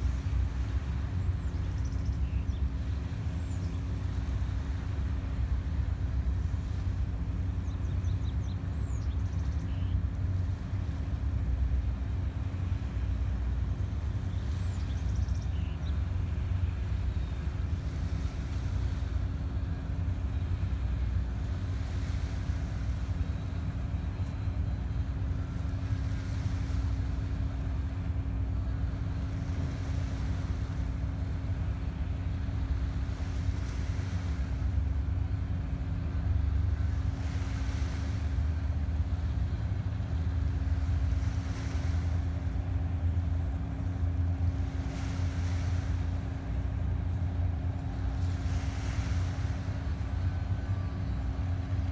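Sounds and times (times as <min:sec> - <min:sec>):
distant boat diesel engine droning: 0:00.0 - 0:51.9
small waves lapping at shore: 0:00.0 - 0:51.9
wind rumble on microphone: 0:00.0 - 0:51.9.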